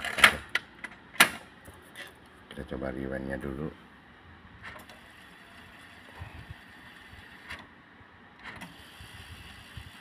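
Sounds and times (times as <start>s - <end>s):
cassette deck rewinding whir: 4.6s - 7.8s, 8.4s - 10.0s.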